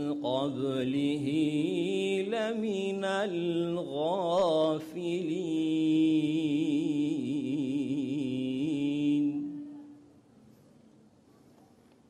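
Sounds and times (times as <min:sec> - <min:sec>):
man chanting melodic recitation: 0:00.0 - 0:09.5.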